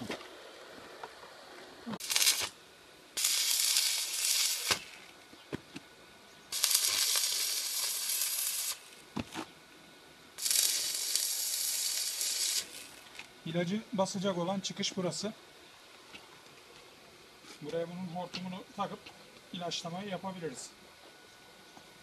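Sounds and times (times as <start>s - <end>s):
welding arc crackling: 1.9s - 5.3s, 6.5s - 9.1s, 10.4s - 13.7s.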